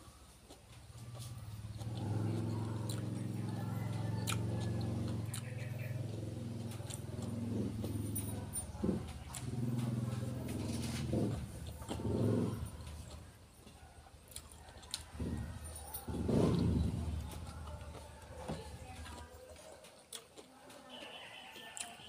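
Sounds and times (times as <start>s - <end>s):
raw vegetables being chewed: 0.0s - 22.0s
vehicle engine running: 0.8s - 19.4s.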